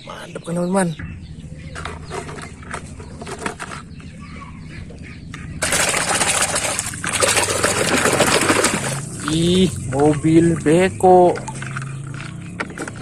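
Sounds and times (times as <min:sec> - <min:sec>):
plastic toys clicking and knocking: 0:01.8 - 0:03.9
hand splashing in muddy water: 0:05.6 - 0:09.4.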